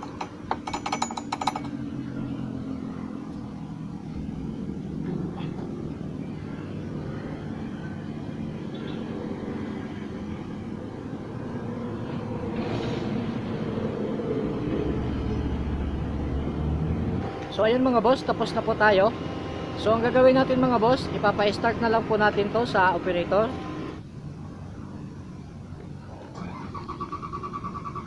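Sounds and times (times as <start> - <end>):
metal funnel clinks: 0.0 - 1.8
engine running: 0.0 - 28.0.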